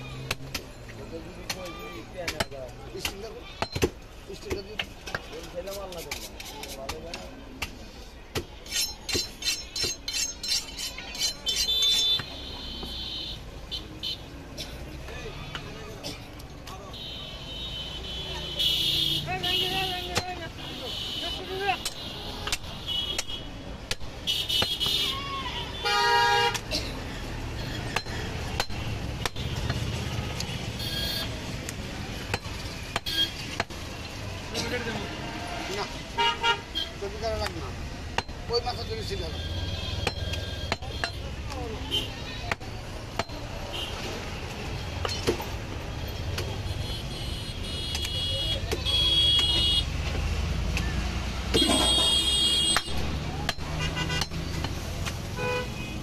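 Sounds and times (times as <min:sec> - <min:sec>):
knife honing scrapes: 0:08.6 - 0:12.2.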